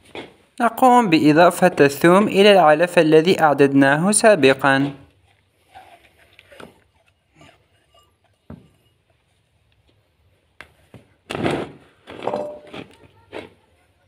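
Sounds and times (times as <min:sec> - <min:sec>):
rustling scrapes: 0:04.8 - 0:09.6, 0:10.8 - 0:13.6.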